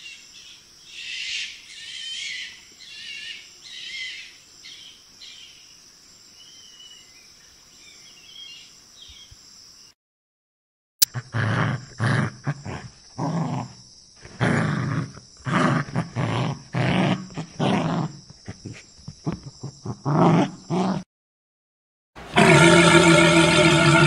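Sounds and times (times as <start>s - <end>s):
hyena calling: 22.2s - 24.0s
walrus long pitched call: 22.2s - 24.0s.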